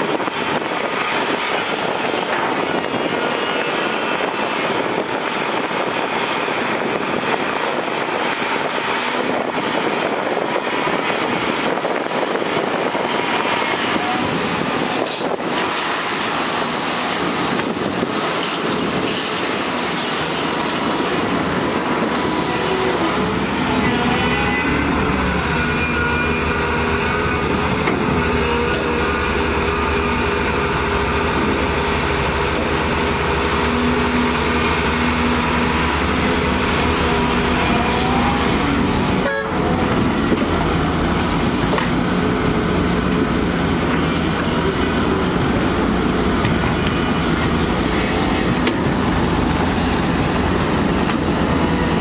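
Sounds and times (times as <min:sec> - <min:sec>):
excavator engine and hydraulics: 0:00.0 - 0:52.0.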